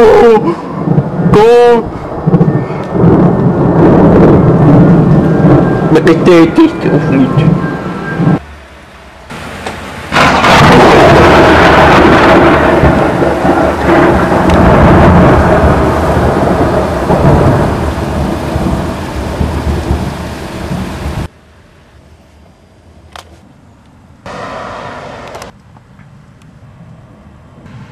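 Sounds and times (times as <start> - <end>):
thunderclap rumbling: 0.0 - 8.4, 9.2 - 21.3
heavy rain: 0.0 - 21.4, 24.3 - 25.5.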